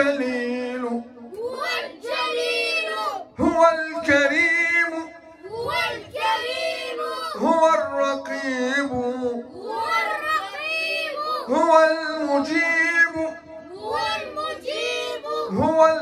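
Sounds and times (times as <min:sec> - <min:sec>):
children singing together: 0:01.4 - 0:03.3, 0:05.4 - 0:07.4, 0:09.6 - 0:11.5, 0:13.7 - 0:15.7.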